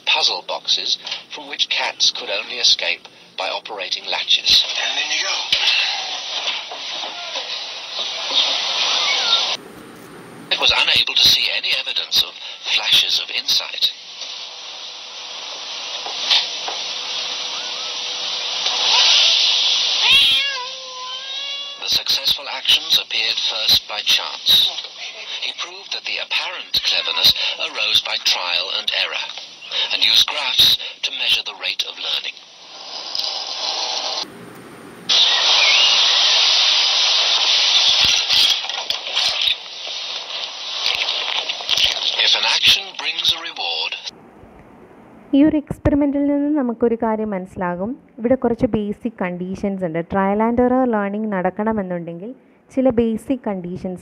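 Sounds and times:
steady hiss: 0.0s - 44.2s
cat meowing: 4.8s - 7.6s, 8.2s - 9.6s, 17.4s - 18.0s, 18.8s - 22.0s, 26.6s - 27.6s, 35.1s - 36.1s.

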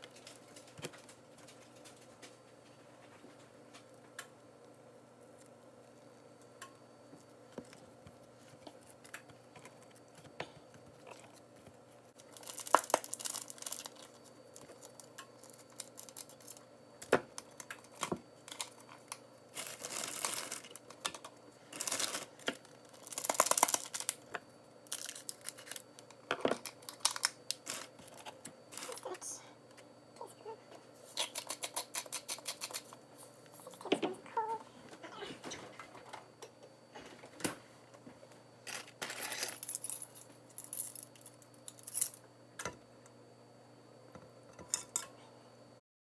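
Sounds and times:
packet crinkling and tearing: 12.2s - 16.6s, 19.5s - 21.1s, 21.7s - 24.2s, 24.9s - 25.8s, 26.6s - 29.1s.

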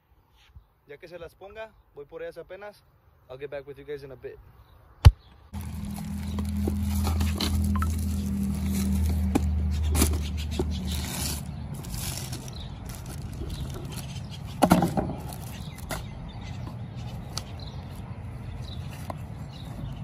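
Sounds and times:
packaging rustling: 5.6s - 14.4s.

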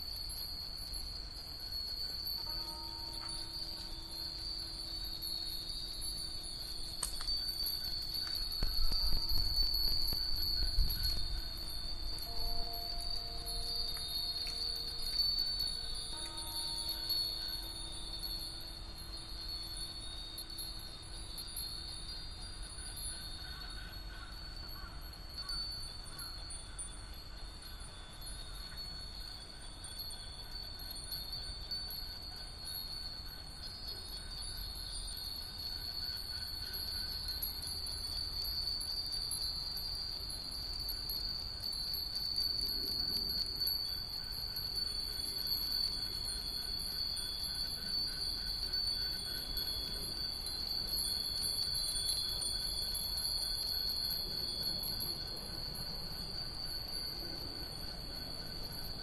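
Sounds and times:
wind bells tinkling: 0.0s - 59.0s.

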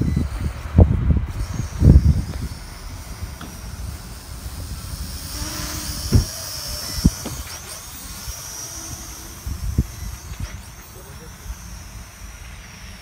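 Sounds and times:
drone propellers whining: 0.0s - 13.0s
wind on microphone: 0.0s - 13.0s
low thumps: 0.9s - 7.9s.

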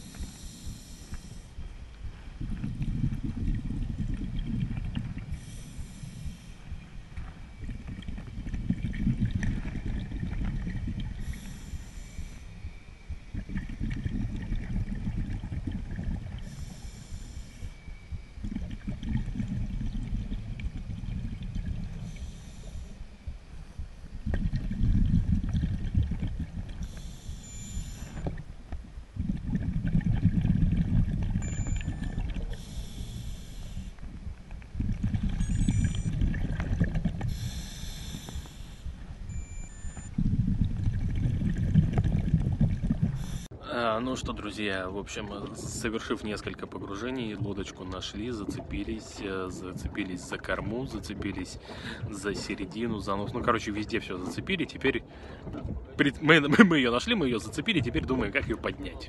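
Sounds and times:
regulator inhalation hiss: 0.0s - 1.7s, 5.3s - 6.8s, 11.2s - 13.2s, 16.4s - 17.8s, 22.0s - 23.1s, 26.8s - 28.2s, 32.5s - 34.0s, 37.3s - 40.0s, 43.2s - 43.5s
exhaled bubbles rumbling: 0.0s - 59.0s.

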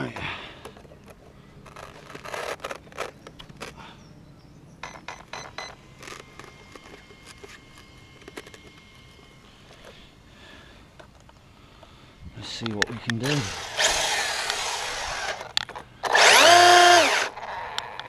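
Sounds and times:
hands handling plastic toy car: 0.6s - 3.8s.

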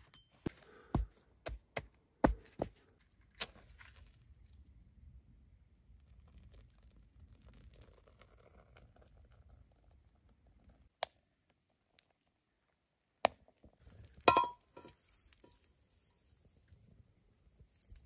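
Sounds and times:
metallic clink of frying pan: 14.3s - 15.0s.

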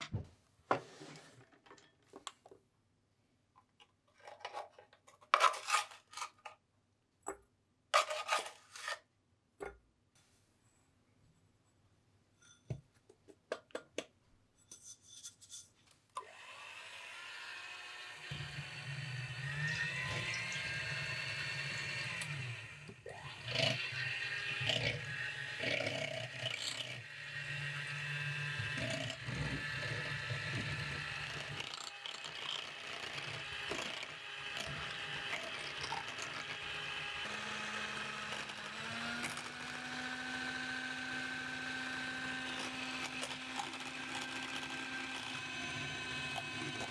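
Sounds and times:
hand mixer motor whirring: 16.2s - 46.9s.

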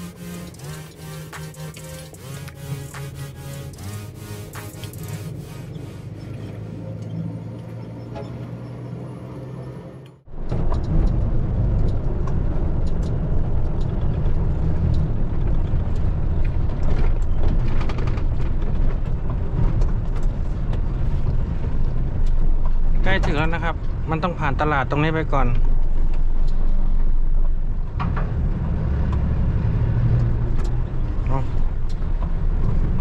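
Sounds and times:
background music: 0.0s - 5.4s
truck engine on road: 0.0s - 33.0s.

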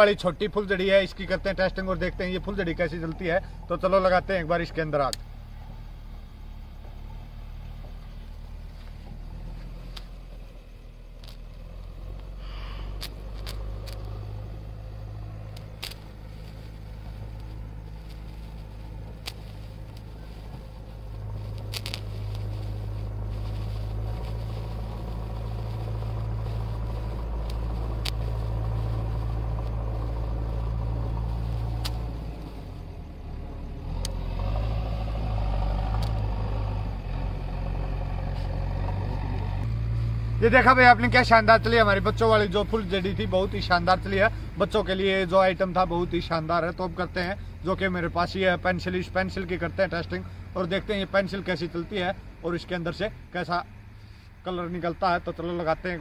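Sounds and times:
steady low rumble: 0.0s - 45.4s
sparkler crackling: 7.4s - 33.2s, 33.9s - 45.0s.

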